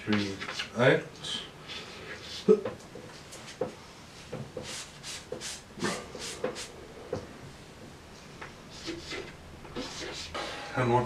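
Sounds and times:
chalk scratching on blackboard: 4.6 - 6.7, 8.7 - 10.4.

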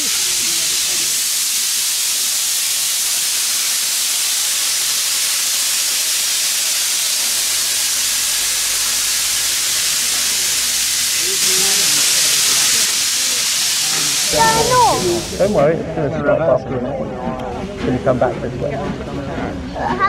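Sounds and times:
steam locomotive hissing steam: 0.0 - 16.0.

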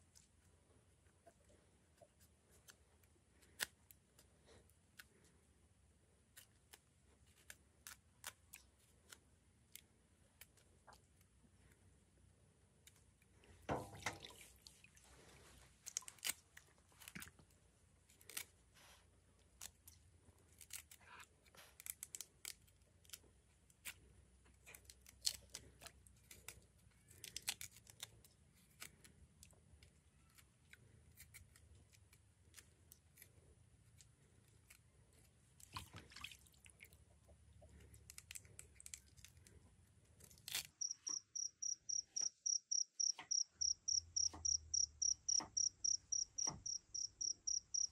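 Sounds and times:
faint clicks and crunches: 12.8 - 47.9
insect high-pitched chirping: 40.8 - 47.9.

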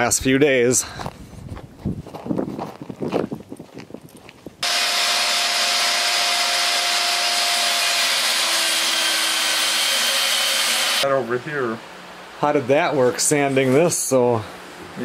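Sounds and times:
electric power sander on wood: 4.6 - 11.0.

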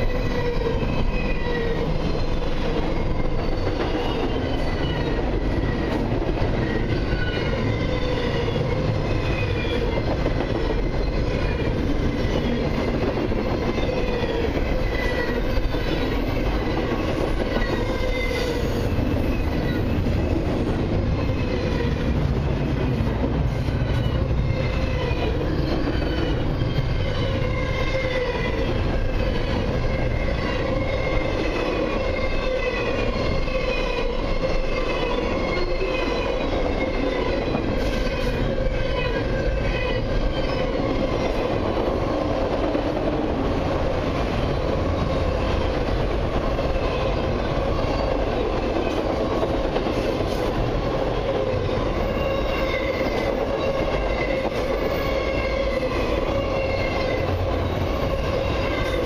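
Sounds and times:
high-pitched wheel squeals: 0.0 - 6.0, 6.6 - 20.3, 23.6 - 41.6, 51.7 - 59.0
steel wheels rumbling on rails: 0.0 - 59.0.

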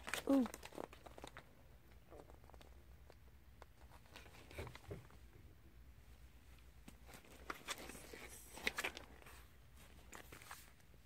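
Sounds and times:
plastic packs rustling and clicking: 0.0 - 5.1, 6.8 - 10.9.

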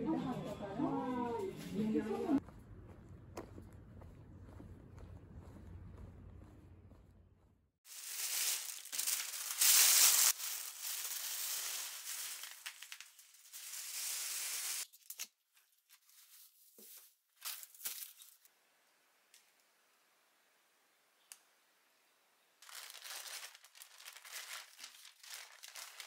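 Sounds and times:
plastic bags rustling: 7.9 - 14.9, 15.9 - 18.4, 22.6 - 26.0.

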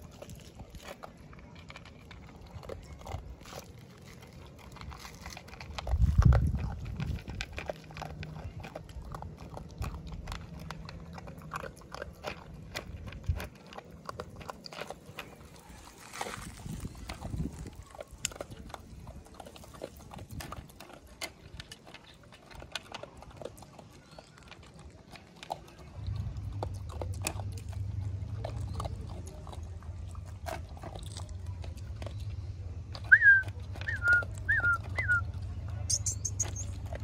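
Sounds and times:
dog eating from plastic bowl: 0.0 - 37.0
short high chirps: 35.9 - 36.7.

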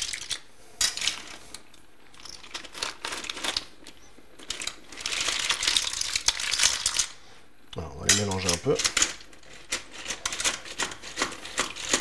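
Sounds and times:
mussel shells clattering in metal pot: 4.4 - 7.1, 8.0 - 12.0.

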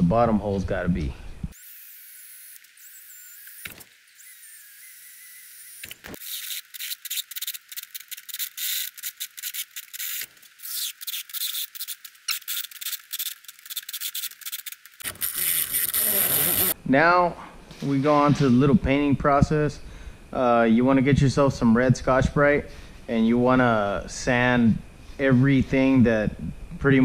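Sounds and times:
cordless drill grinding metal: 1.6 - 16.8.

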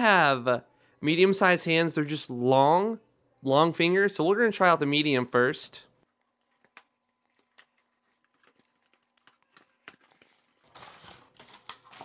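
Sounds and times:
packaging rustling: 5.9 - 12.0.

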